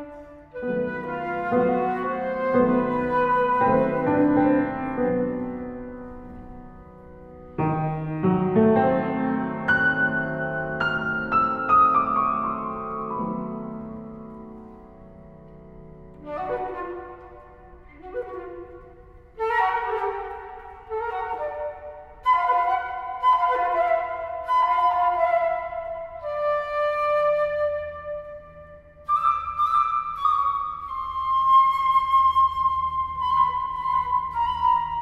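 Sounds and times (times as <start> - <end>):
flute playing held notes: 0.0 - 5.7, 16.2 - 35.0
piano: 0.0 - 35.0.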